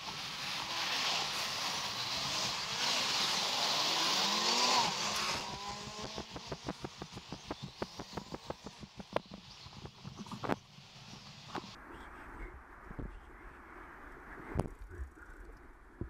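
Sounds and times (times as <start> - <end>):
van passing by: 0.0 - 9.0
road traffic passing: 0.0 - 11.8.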